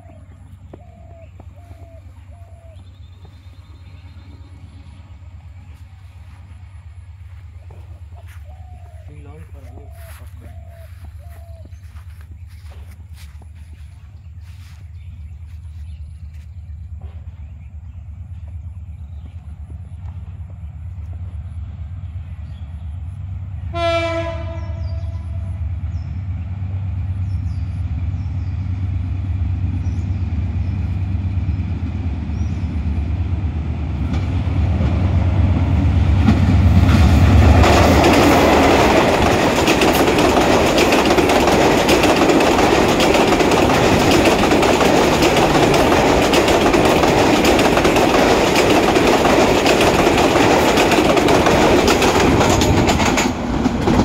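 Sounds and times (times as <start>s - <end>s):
locomotive engine rumble: 0.0s - 54.0s
locomotive horn blast: 23.6s - 25.6s
train wheels clattering on rails: 25.8s - 54.0s.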